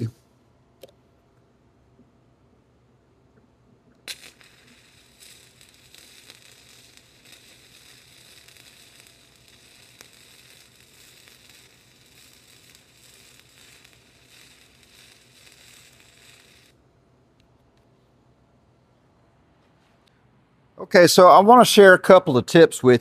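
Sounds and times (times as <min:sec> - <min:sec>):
welding arc crackling hiss: 0:03.9 - 0:16.8.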